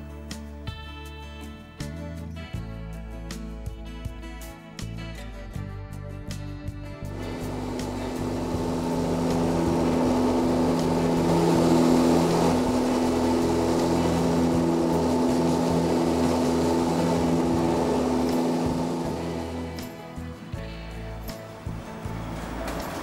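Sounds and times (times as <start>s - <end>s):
aircraft engines droning in cabin: 7.1s - 23.0s.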